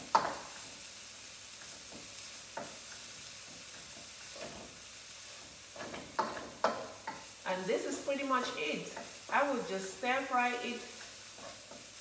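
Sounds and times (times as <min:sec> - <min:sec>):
vegetables sizzling in a pan: 0:00.0 - 0:12.0.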